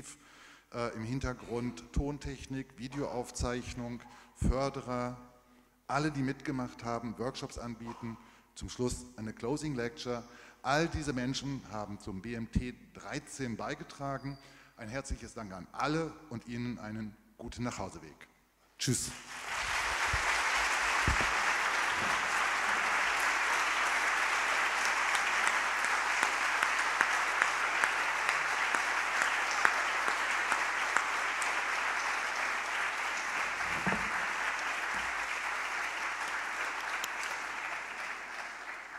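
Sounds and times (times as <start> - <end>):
audience applauding: 19.1 - 38.9.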